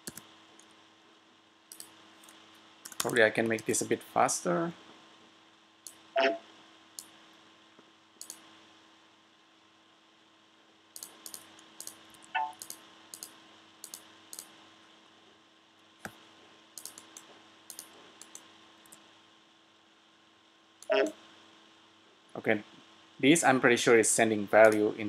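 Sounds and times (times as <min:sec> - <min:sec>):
computer keyboard key presses: 0:00.0 - 0:00.2, 0:01.7 - 0:03.7, 0:11.0 - 0:14.5, 0:16.8 - 0:18.4
faint steady hum: 0:00.0 - 0:25.0.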